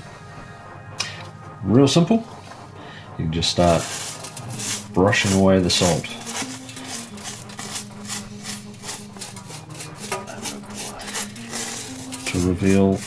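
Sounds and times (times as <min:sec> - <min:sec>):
toothbrush scrubbing plastic: 0:03.6 - 0:13.0.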